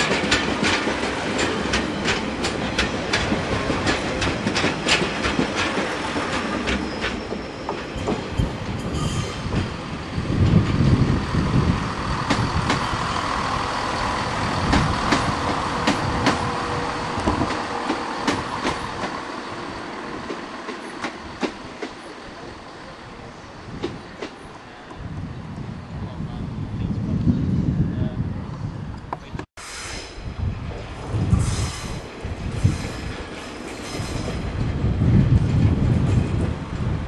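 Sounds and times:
train wheels clicking over rail joints: 0.0s - 22.6s, 31.2s - 37.0s
train engine rumbling: 0.0s - 37.0s
wheel squeal: 6.7s - 11.1s.

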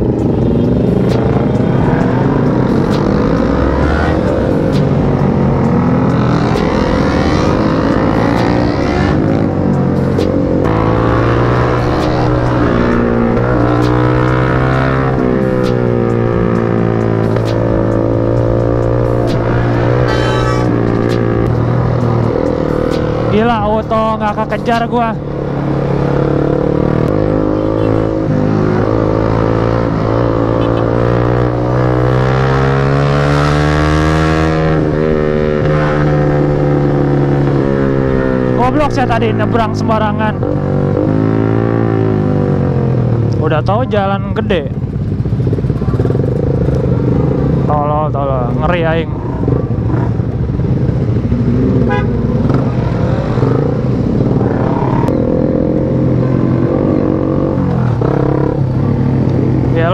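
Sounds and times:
traffic engines: 0.0s - 59.9s
short horn beep: 20.0s - 20.8s
scooter engine revving: 49.1s - 59.9s.

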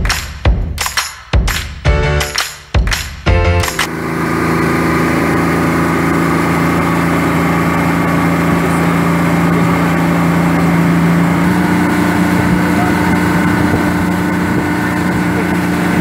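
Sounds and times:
motorboat engine running: 3.3s - 16.0s
rushing water from wake: 3.9s - 16.0s.

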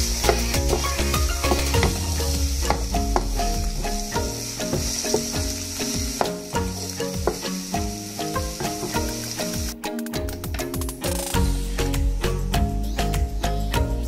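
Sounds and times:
vegetables sizzling in oil: 0.0s - 9.8s
background music with beat: 0.0s - 14.0s.

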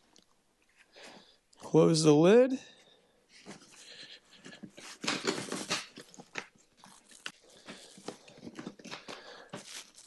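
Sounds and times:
plastic scraping: 4.6s - 6.5s.

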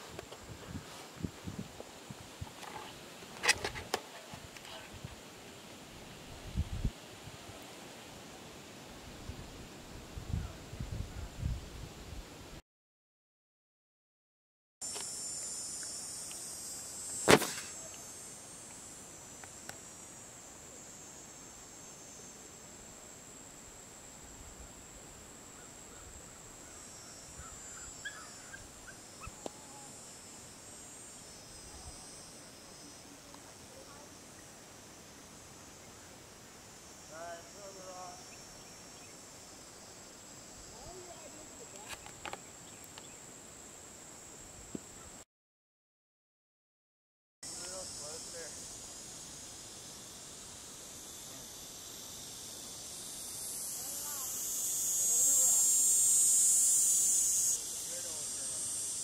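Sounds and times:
insects droning: 0.0s - 10.8s, 14.8s - 45.2s, 47.4s - 59.0s
sharp knock: 17.2s - 17.8s.

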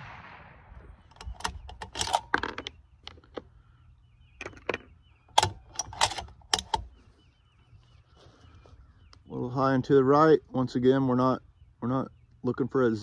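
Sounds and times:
rifle bolt clicking and clacking: 1.1s - 3.5s, 4.4s - 7.0s.

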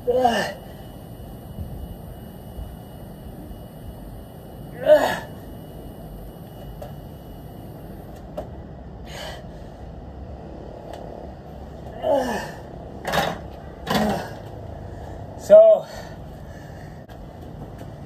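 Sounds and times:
man grunting with effort: 0.0s - 0.7s, 4.7s - 5.4s, 11.9s - 12.7s
low background hum: 0.0s - 18.0s.

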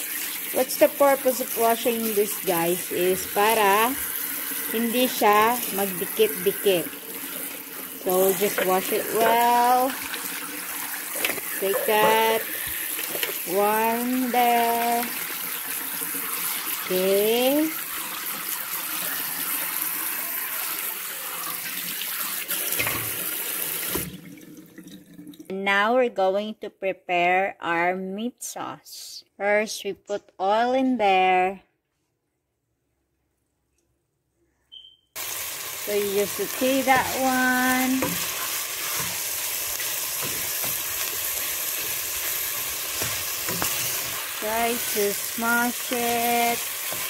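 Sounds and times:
meat sizzling in oil: 0.0s - 24.1s, 35.2s - 47.0s
tap water splashing in colander: 17.9s - 25.4s.

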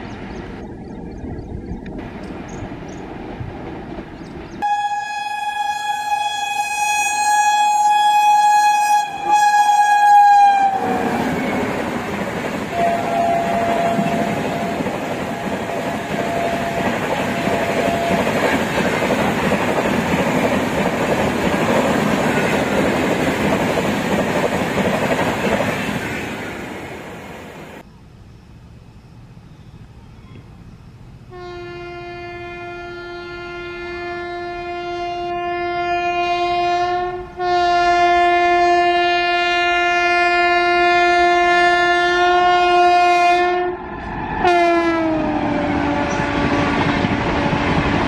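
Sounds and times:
train wheels on rails: 1.8s - 4.7s, 10.5s - 27.8s, 45.2s - 48.0s
locomotive horn: 4.6s - 19.0s, 31.3s - 48.0s.

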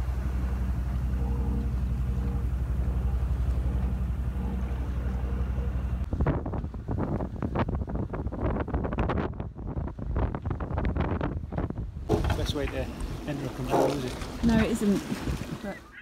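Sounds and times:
boat engine droning: 0.0s - 7.9s, 12.1s - 16.0s
wind buffeting microphone: 0.0s - 15.7s
rough sea breaking: 0.0s - 16.0s.

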